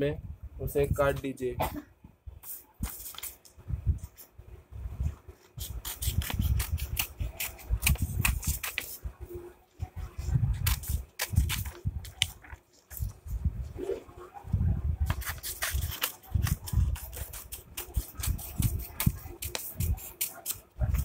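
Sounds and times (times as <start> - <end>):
scissors snipping paper: 2.5 - 3.4, 5.4 - 9.0, 10.6 - 13.0, 15.0 - 21.0.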